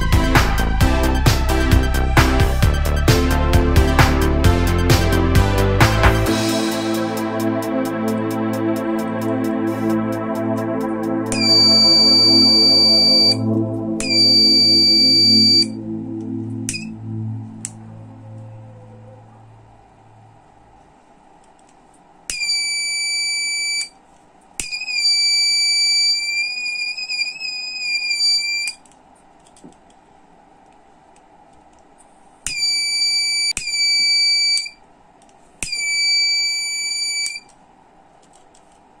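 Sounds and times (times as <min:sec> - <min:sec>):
high-pitched buzzer tone: 0:11.3 - 0:19.0, 0:32.5 - 0:34.8, 0:35.7 - 0:37.5.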